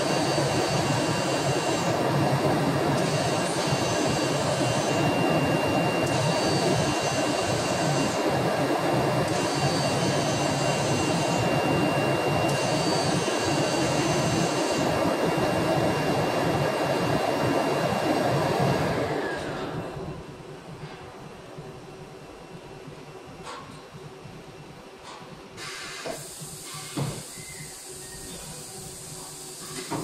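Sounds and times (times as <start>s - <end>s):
cnc router rushing with high whine: 0.0s - 20.7s.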